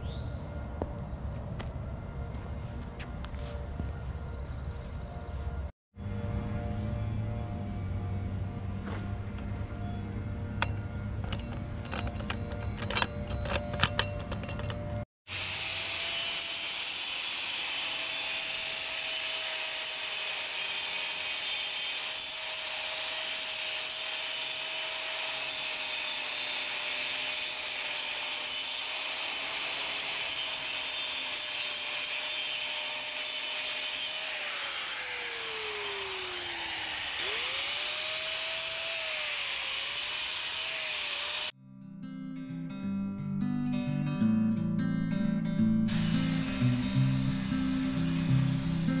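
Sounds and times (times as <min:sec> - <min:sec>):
angle grinder cutting concrete: 0:14.5 - 0:41.6, 0:45.9 - 0:49.0.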